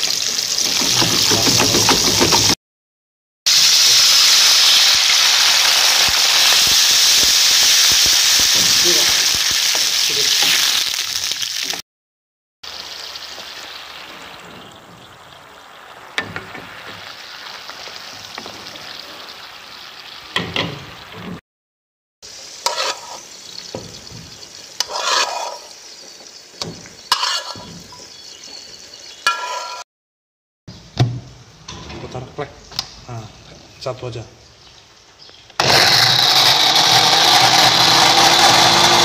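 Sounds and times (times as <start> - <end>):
garlic sizzling in hot oil: 0.0 - 1.6, 3.5 - 11.8, 12.6 - 21.4, 22.2 - 29.8
wooden spatula scraping wok: 22.6 - 23.3, 24.0 - 25.8, 26.8 - 28.0, 29.3 - 29.8.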